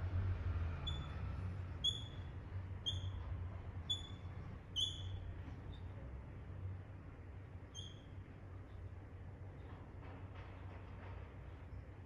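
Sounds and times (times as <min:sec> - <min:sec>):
marker squeaking on a whiteboard: 0:02.8 - 0:05.9, 0:07.7 - 0:08.1.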